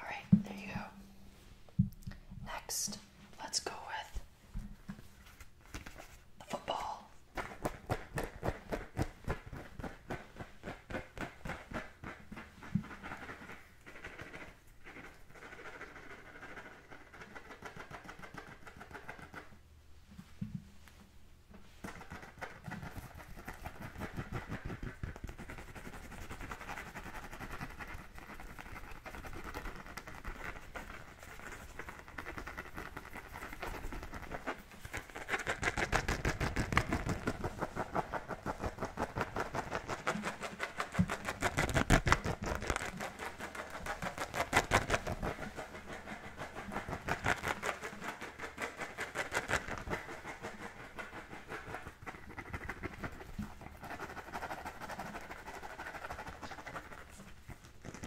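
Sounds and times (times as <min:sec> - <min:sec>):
fingernails scratching a football: 0:07.4 - 0:19.6, 0:21.8 - 0:58.0.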